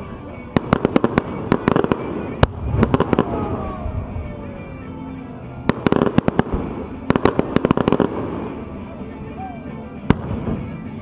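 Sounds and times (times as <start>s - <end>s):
fireworks crackling pops: 0.5s - 4.4s, 5.7s - 8.9s, 10.1s - 11.0s.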